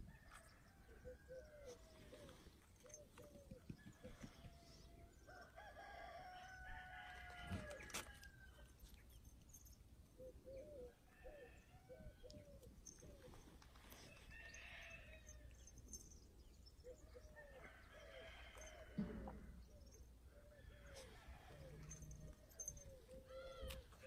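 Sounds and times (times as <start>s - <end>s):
rooster crowing: 4.3s - 8.4s.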